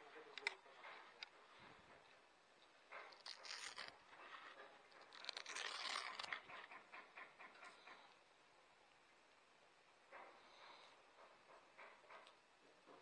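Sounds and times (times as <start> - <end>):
rustling and scraping of fishing rod: 2.9 - 6.7.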